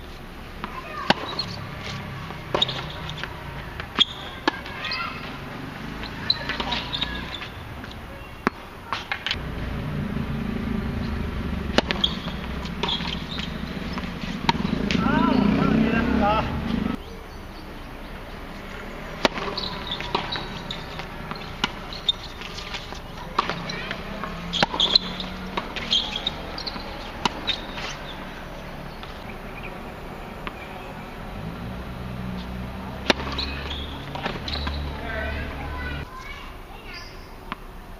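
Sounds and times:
tennis ball bouncing: 0.5s - 17.0s, 18.2s - 31.0s, 32.3s - 36.1s
racket hitting tennis ball: 0.6s - 17.0s, 18.5s - 29.7s, 32.3s - 36.0s
shoe squeaks on hard court: 0.7s - 3.3s, 3.9s - 5.4s, 6.0s - 9.4s, 11.8s - 15.6s, 19.3s - 29.3s, 33.1s - 36.0s
low rumble: 9.4s - 17.0s.

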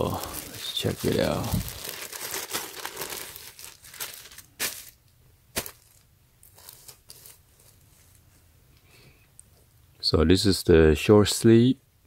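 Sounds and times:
plastic bag crinkling: 0.0s - 8.2s.

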